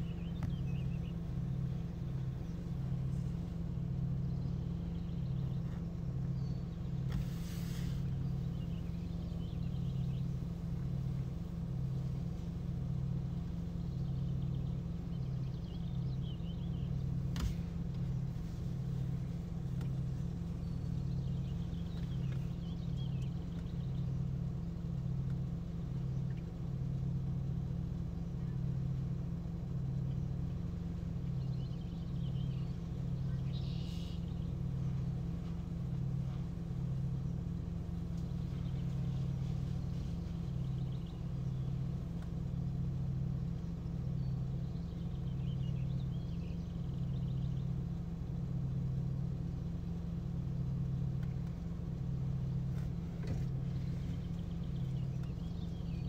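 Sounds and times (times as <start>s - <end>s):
low throbbing hum: 0.0s - 56.0s.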